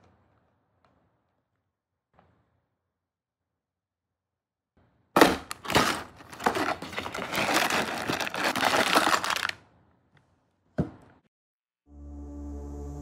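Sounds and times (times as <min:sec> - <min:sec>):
cardboard tearing open: 0:05.2 - 0:09.6
plastic bags crinkling: 0:05.2 - 0:09.6.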